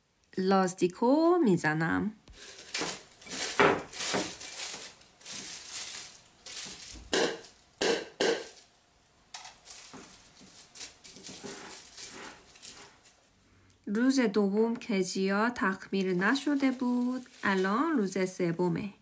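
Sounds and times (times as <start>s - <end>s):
plastic film crinkling: 2.3s - 13.4s, 15.0s - 18.7s
sharp handling sounds: 9.3s - 13.3s.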